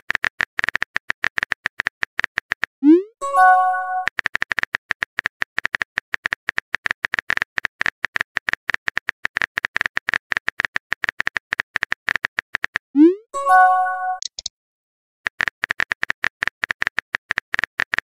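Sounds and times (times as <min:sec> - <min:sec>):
message-sent chime: 0:02.9 - 0:04.1, 0:13.0 - 0:14.4
keyboard typing clicks: 0:13.8 - 0:14.5.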